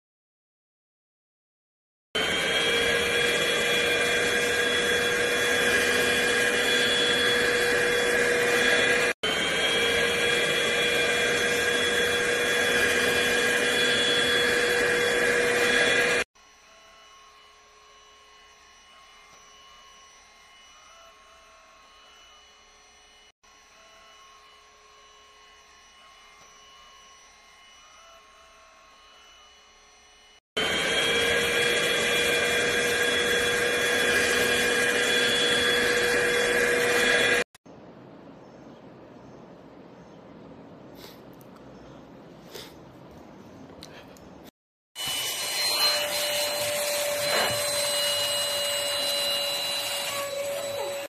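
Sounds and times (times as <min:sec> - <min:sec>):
vacuum cleaner running: 0:02.2 - 0:37.6, 0:45.0 - 0:51.0.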